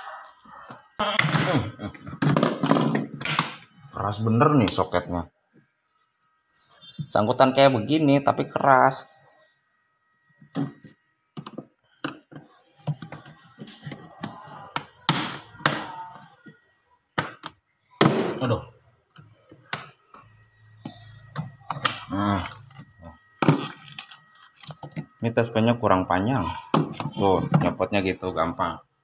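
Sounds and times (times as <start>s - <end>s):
person muttering: 1.0s - 2.2s.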